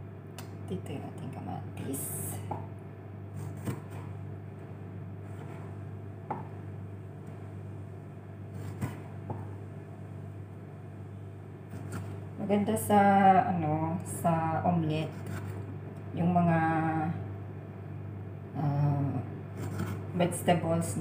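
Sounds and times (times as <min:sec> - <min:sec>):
steady low hum: 0:00.0 - 0:21.0
knife knocking on cutting board: 0:06.3 - 0:06.6.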